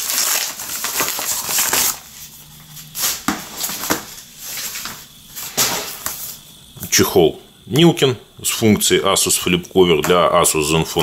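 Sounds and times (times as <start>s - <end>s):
padded paper mailer crinkling: 0.0s - 2.4s.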